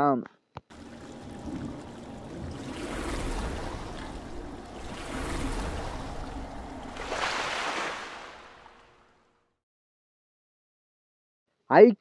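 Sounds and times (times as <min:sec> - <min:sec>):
splashing rushing water: 0:00.7 - 0:09.2.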